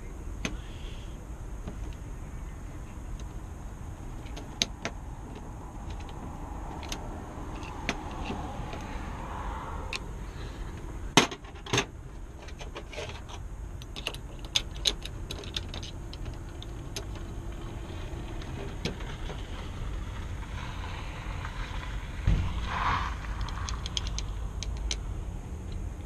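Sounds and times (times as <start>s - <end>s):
lock parts clicking: 4.1s - 8.9s, 11.1s - 17.3s, 23.4s - 25.1s
low rumble: 16.6s - 26.0s.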